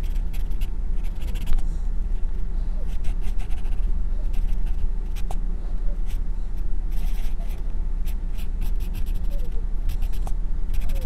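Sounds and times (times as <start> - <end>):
pencil scratching on paper: 0.0 - 1.6, 2.8 - 5.4, 6.9 - 11.0
steady low hum: 0.0 - 11.0.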